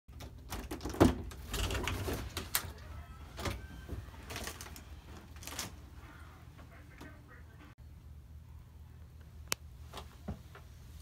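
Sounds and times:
interior door opening: 0:00.1 - 0:06.0
low steady hum: 0:02.0 - 0:11.0.

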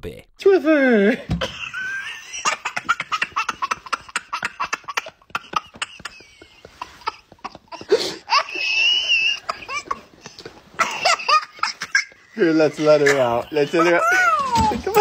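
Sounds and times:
toddler laughing: 0:01.7 - 0:15.0
toddler squealing: 0:13.4 - 0:15.0.

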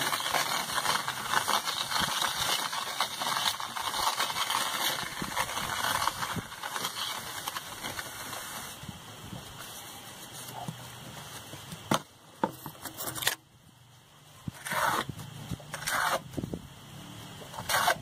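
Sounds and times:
wet mortar scraping: 0:00.0 - 0:08.8, 0:14.4 - 0:16.5, 0:17.4 - 0:18.0.

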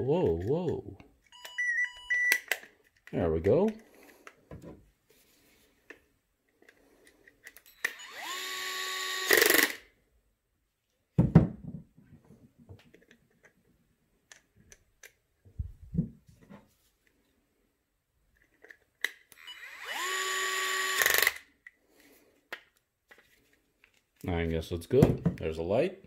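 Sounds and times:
cordless drill spinning: 0:06.8 - 0:09.8, 0:19.3 - 0:21.5.

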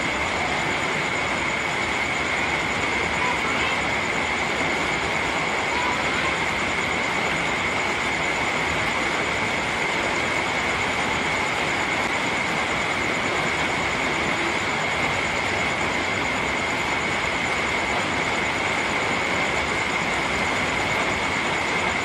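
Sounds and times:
faint high-pitched tone: 0:00.0 - 0:10.8
steady rain hiss: 0:00.0 - 0:22.0.

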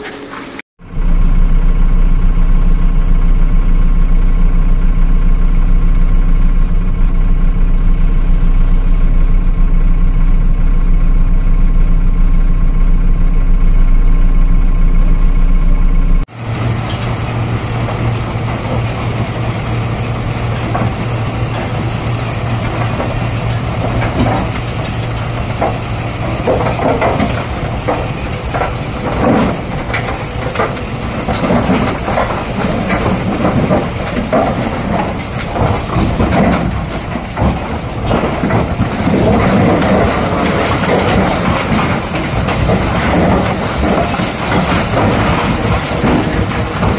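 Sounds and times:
diesel truck engine running: 0:00.0 - 0:46.9
rocks knocking and clattering: 0:17.8 - 0:46.9.

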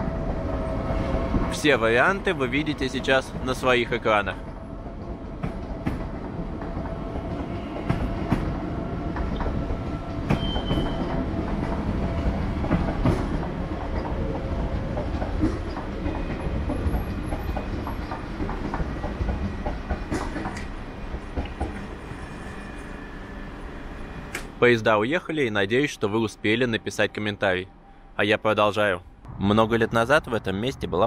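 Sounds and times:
train rolling rumble: 0:00.0 - 0:27.9
high wheel squeal: 0:10.3 - 0:11.2, 0:21.9 - 0:24.3.

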